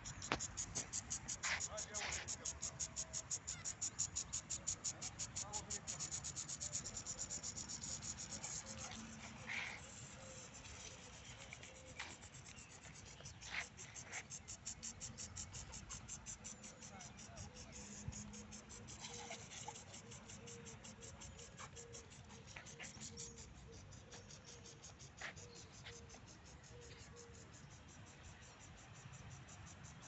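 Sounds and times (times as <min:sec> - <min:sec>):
lawn sprinkler ticking: 0:00.0 - 0:09.0.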